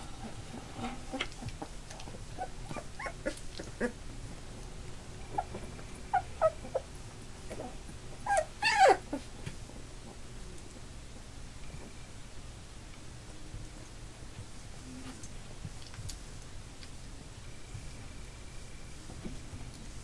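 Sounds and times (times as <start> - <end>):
puppies whimpering and squealing: 0.2 - 4.0, 5.3 - 9.3.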